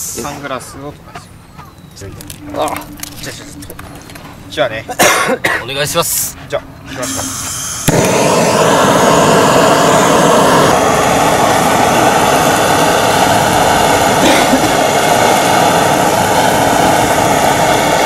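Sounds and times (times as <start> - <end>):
gas torch flame hissing: 0.0 - 0.6, 6.9 - 18.0.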